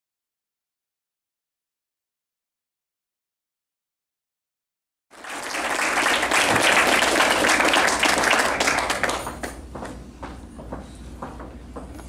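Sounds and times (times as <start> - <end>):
audience applauding: 5.1 - 9.7.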